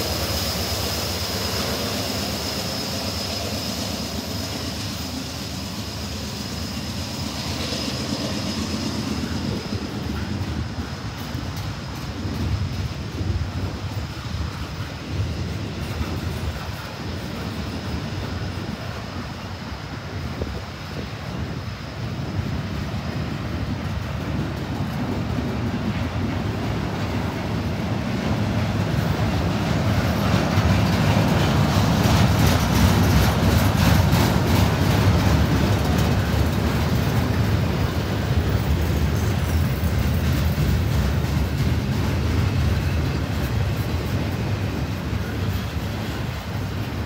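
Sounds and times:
diesel locomotive rumble: 0:00.0 - 0:47.0
train wheels clicking on rails: 0:00.0 - 0:47.0.

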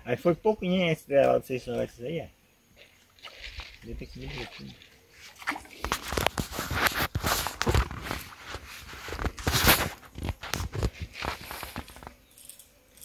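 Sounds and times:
footsteps rustling through grass: 0:02.8 - 0:12.3.

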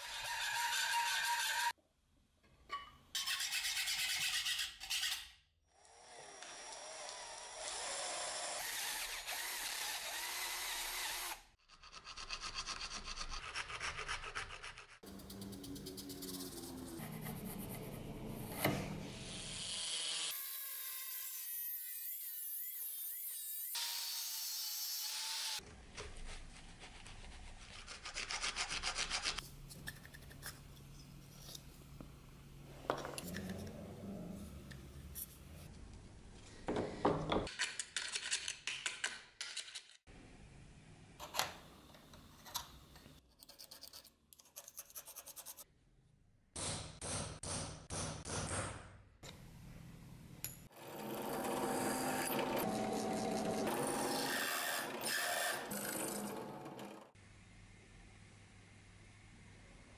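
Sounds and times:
angle grinder cutting steel: 0:50.7 - 0:57.2.

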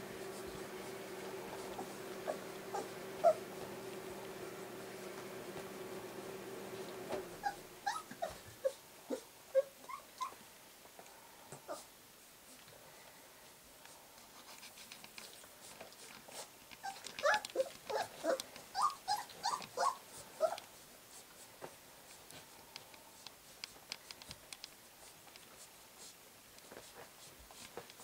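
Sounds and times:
puppies shuffling and clicking: 0:00.0 - 0:06.0, 0:13.8 - 0:28.0
puppies whimpering and squeaking: 0:01.7 - 0:03.5, 0:07.4 - 0:10.4, 0:16.8 - 0:20.6.

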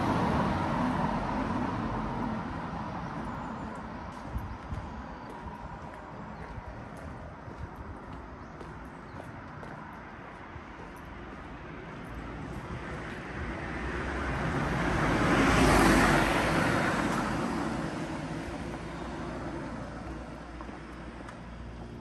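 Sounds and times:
vehicle passing by: 0:11.8 - 0:21.8.

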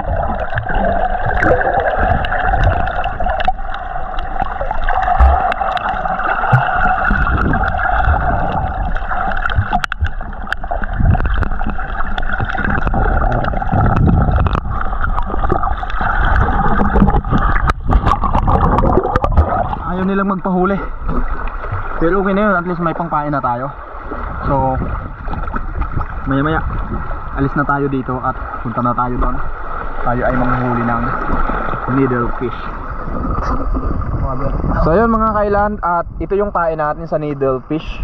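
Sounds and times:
low rumble: 0:00.0 - 0:22.5
muffled underwater rush: 0:00.0 - 0:38.0.

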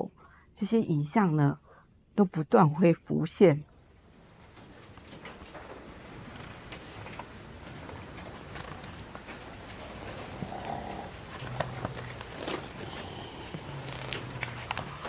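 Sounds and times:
clicks and knocks in fox cages: 0:04.1 - 0:15.0.

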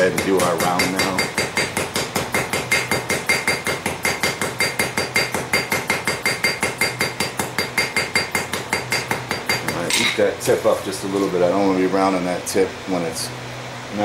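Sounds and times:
hammer striking on anvil: 0:00.0 - 0:10.2.

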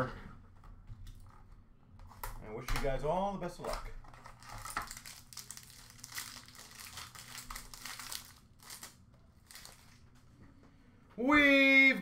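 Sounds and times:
foil and cardboard crinkling: 0:04.1 - 0:10.0.

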